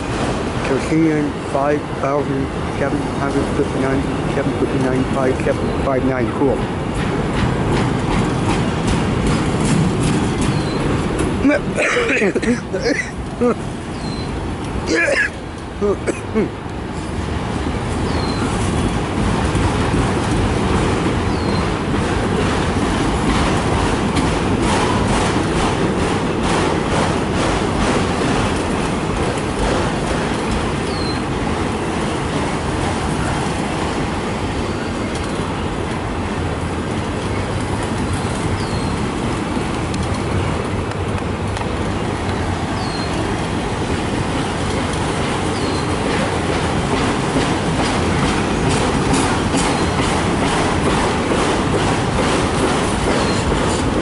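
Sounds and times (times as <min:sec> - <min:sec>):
train wheels rumbling on rail: 0:00.0 - 0:54.0
wheels squealing: 0:10.0 - 0:11.0, 0:13.9 - 0:14.3, 0:30.8 - 0:31.2, 0:42.7 - 0:43.3.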